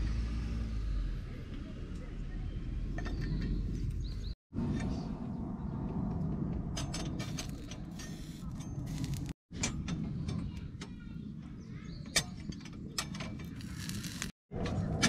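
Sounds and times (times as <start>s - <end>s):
low wind rumble: 2.5s - 15.0s
fire crackling: 8.8s - 9.4s, 13.5s - 14.4s.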